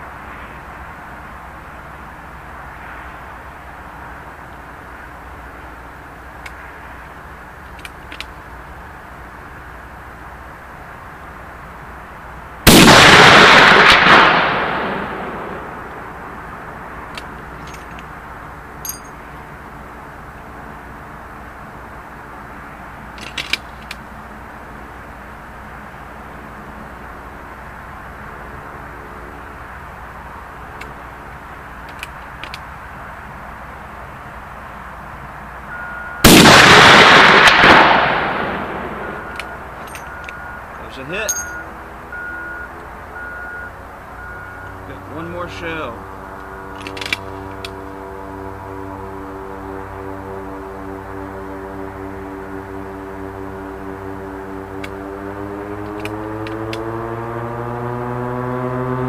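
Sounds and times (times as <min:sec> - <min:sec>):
rifle shot with echo: 0:12.7 - 0:15.6, 0:36.3 - 0:39.1.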